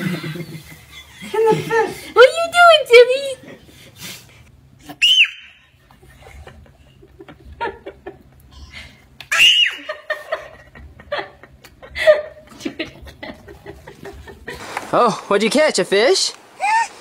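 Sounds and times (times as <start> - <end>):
toddler high-pitched squeal: 4.9 - 5.6, 9.3 - 9.9, 16.6 - 17.0
toddler laughing: 8.4 - 10.4, 16.6 - 17.0.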